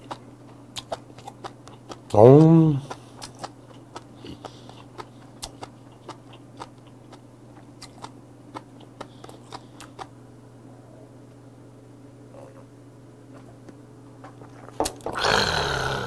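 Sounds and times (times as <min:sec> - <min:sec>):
chewing food crunches: 0:00.0 - 0:10.2
steady low hum: 0:00.0 - 0:16.0.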